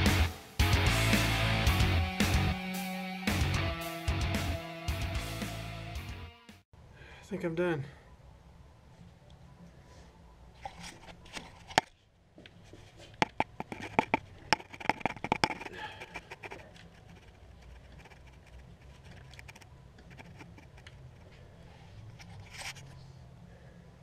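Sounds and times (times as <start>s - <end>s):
sharp clicks and taps: 13.2s - 21.0s.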